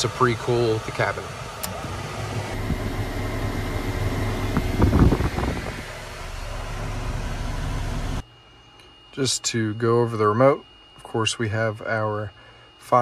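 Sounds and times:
air conditioner air rush: 0:00.0 - 0:08.2
low hum: 0:01.6 - 0:13.0.

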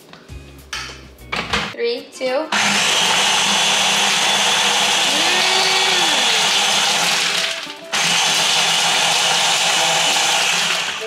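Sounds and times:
blender motor running: 0:02.6 - 0:11.0.

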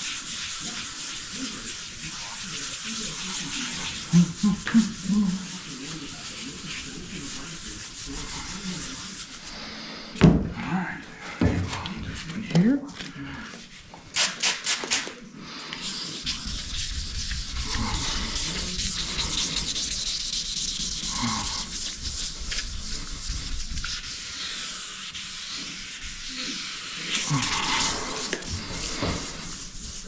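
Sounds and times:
wet sanding by hand: 0:00.0 - 0:09.8, 0:15.8 - 0:30.0.

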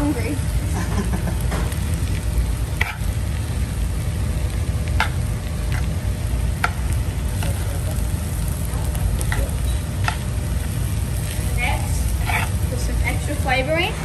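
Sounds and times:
low steady rumble: 0:00.0 - 0:14.0
rice sizzling in a frying pan: 0:00.0 - 0:14.0
metal spatula scraping a pan: 0:02.8 - 0:03.1, 0:12.1 - 0:12.8.

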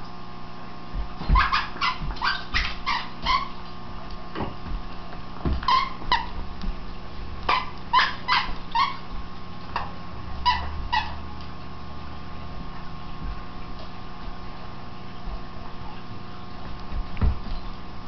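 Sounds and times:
dog yipping: 0:01.3 - 0:03.6, 0:07.5 - 0:09.0, 0:10.4 - 0:11.2.

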